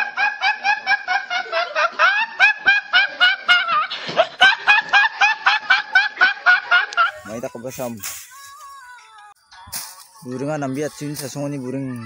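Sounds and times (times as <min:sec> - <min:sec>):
man laughing uncontrollably: 0:00.0 - 0:08.0.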